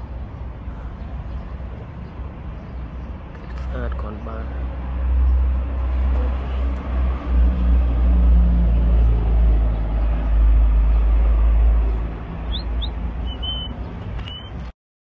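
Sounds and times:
high rising whistles: 12.5s - 14.6s.

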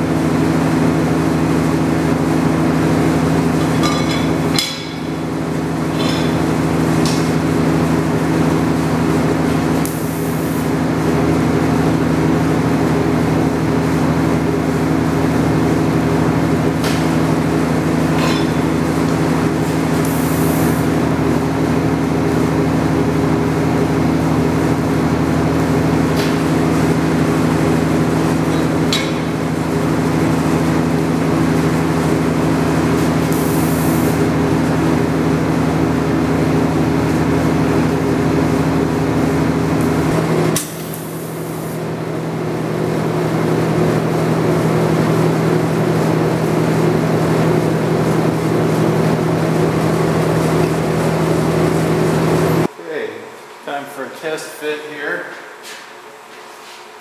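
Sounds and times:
welder buzzing: 0.0s - 52.7s.

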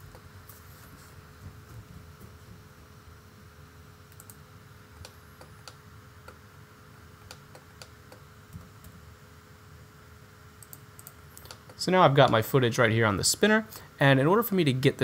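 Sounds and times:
low steady hum: 0.0s - 15.0s
keyboard and mouse clicks: 4.1s - 4.4s, 10.6s - 12.4s.

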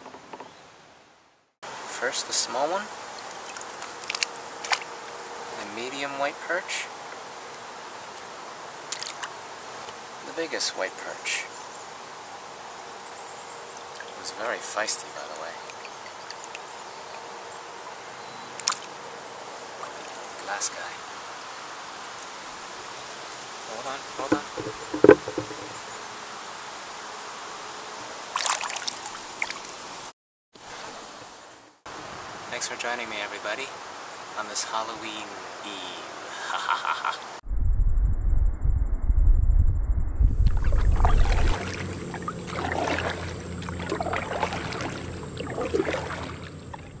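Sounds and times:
water splashing and trickling: 2.3s - 5.2s, 8.1s - 10.0s, 13.7s - 17.4s, 18.5s - 21.0s, 24.1s - 25.8s, 28.3s - 31.2s, 40.4s - 47.0s
water dripping off paddle: 3.1s - 4.9s, 13.8s - 14.3s, 15.3s - 17.2s
paddle splashing in water: 3.2s - 4.9s, 24.2s - 25.8s, 28.3s - 29.7s, 40.6s - 47.0s
knock on canoe: 24.3s - 25.8s.

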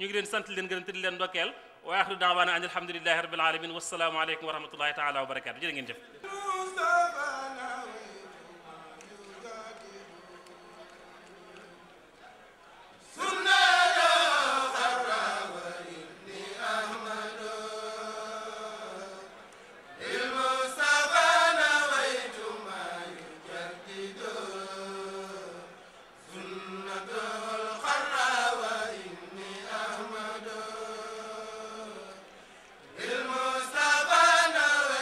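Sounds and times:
men chanting: 6.2s - 11.6s, 13.1s - 19.4s, 20.0s - 32.3s, 32.9s - 35.0s.

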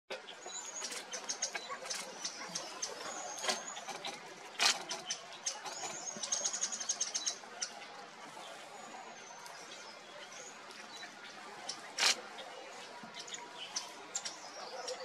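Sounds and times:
birds pecking seed on stones: 0.8s - 6.6s, 11.6s - 12.2s
wings fluttering: 11.9s - 12.2s.

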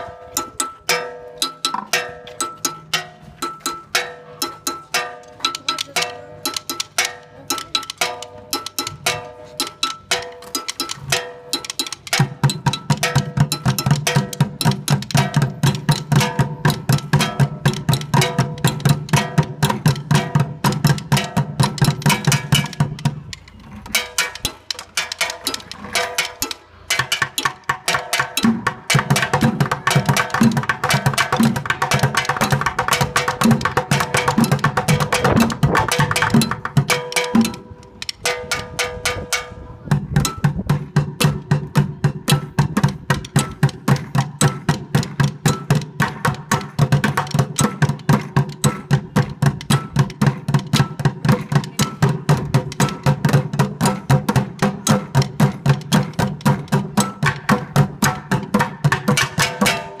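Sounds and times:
drumsticks beating plastic buckets: 0.0s - 39.3s, 40.2s - 60.0s
drumsticks clacking: 0.4s - 13.2s, 21.7s - 28.5s, 31.0s - 38.8s.

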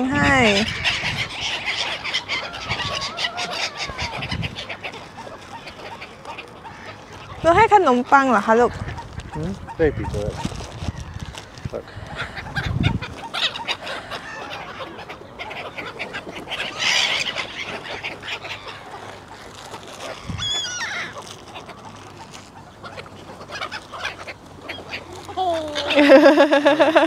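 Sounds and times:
ducks calling and squabbling: 0.0s - 27.0s
wavering high bird call: 20.1s - 21.2s.

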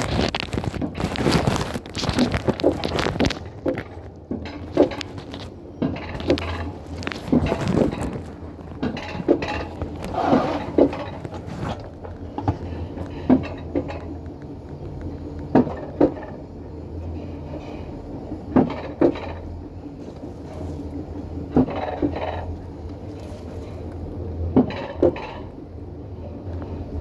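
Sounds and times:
steady low hum: 0.0s - 27.0s
wheels clacking over rail joints: 2.7s - 14.3s.

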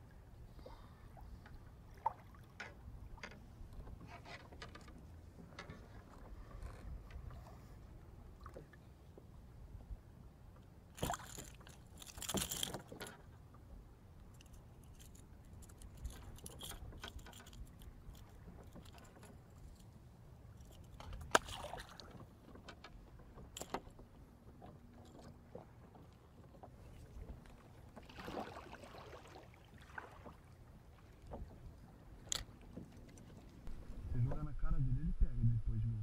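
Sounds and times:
fishing tackle jangling: 11.0s - 13.2s, 14.3s - 19.9s
low steady rumble: 33.6s - 36.0s.

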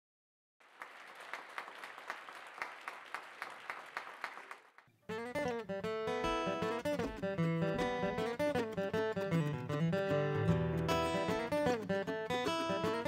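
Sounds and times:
faint audience applause: 0.6s - 4.9s
mandolin: 5.1s - 13.0s
strummed acoustic guitars: 5.1s - 13.0s.

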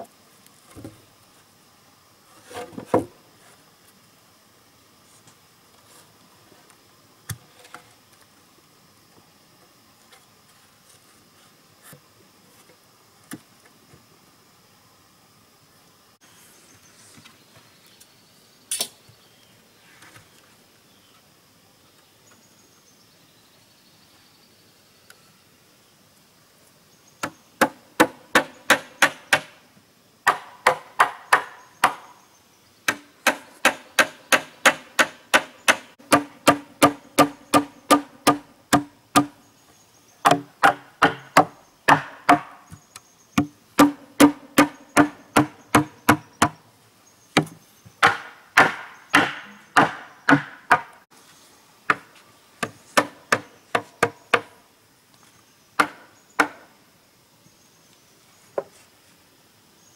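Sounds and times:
hand tool striking wood: 27.2s - 29.6s, 30.3s - 32.1s, 32.9s - 39.4s, 40.2s - 42.8s, 43.4s - 46.6s, 47.4s - 51.0s, 51.9s - 54.6s, 55.8s - 56.6s.

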